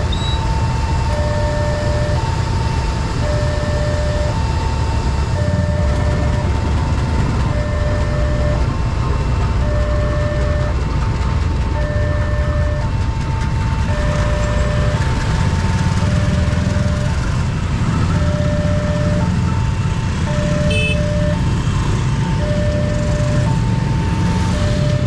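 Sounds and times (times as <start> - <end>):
level crossing alarm two-tone: 0.0 - 6.6, 7.4 - 8.6, 9.6 - 10.8, 11.7 - 13.0, 13.8 - 15.3, 15.9 - 17.2, 18.2 - 19.4, 20.2 - 21.5, 22.4 - 25.0
motorcycle engines rumbling: 0.0 - 25.0.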